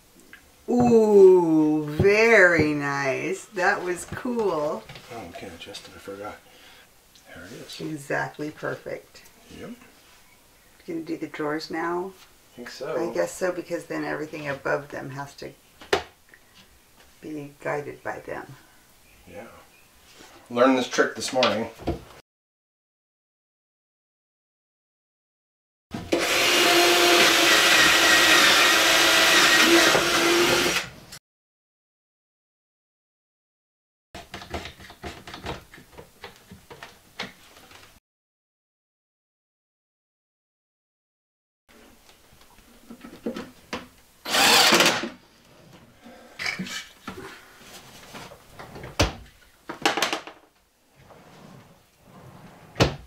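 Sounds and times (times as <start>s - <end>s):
cordless drill boring into wood: 26.1s - 31.0s, 44.2s - 45.1s
sharp knocks and clicks: 34.2s - 37.4s
drawer sliding on metal slides: 51.0s - 53.0s.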